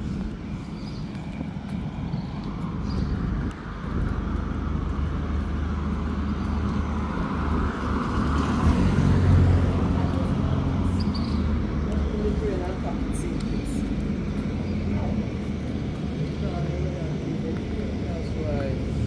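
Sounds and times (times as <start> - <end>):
vehicle engine passing: 5.6 - 13.3.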